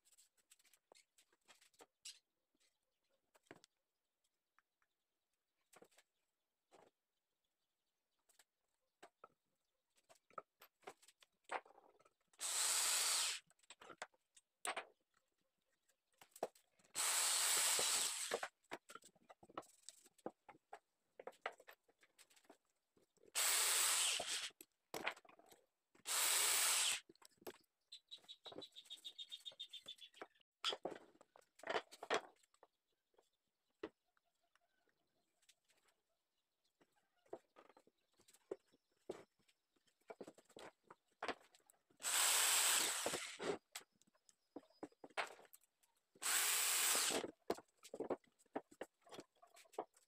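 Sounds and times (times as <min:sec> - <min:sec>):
power drill driving screws into wood: 0:12.4 - 0:13.5, 0:17.0 - 0:18.5, 0:23.4 - 0:24.6, 0:26.0 - 0:27.0, 0:42.0 - 0:43.6, 0:46.2 - 0:47.3.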